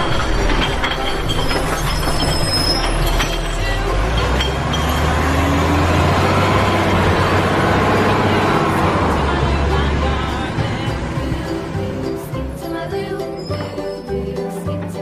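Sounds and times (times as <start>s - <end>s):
clicks and clatter: 0.0s - 4.9s
toy truck wheels rolling on concrete: 0.0s - 15.0s.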